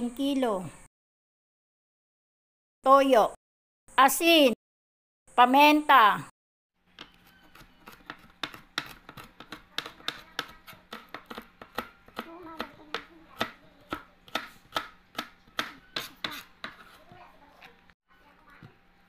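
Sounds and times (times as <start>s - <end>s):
knife chopping on cutting board: 7.0s - 17.8s.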